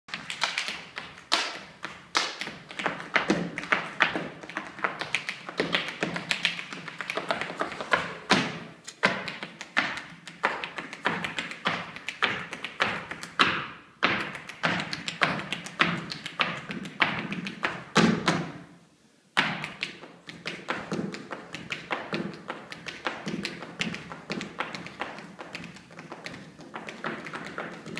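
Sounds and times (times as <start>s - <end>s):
loud foot stamps: 1.4s - 11.8s, 12.8s - 18.6s.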